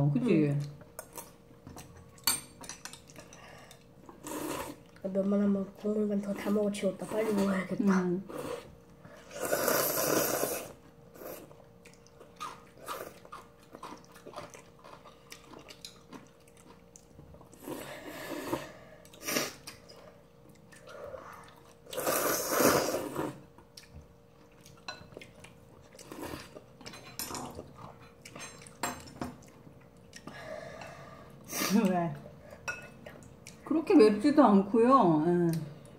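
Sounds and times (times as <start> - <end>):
chewing and slurping noodles: 2.9 - 5.0, 8.3 - 31.0.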